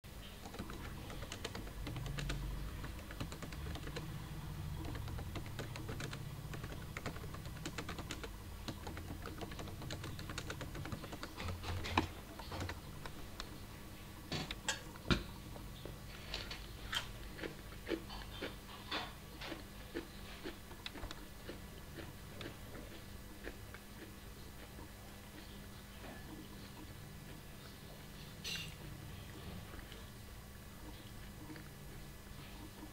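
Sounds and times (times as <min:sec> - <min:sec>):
low steady hum: 0:00.0 - 0:32.9
keyboard keystroke clicks: 0:00.4 - 0:04.1, 0:04.8 - 0:13.5.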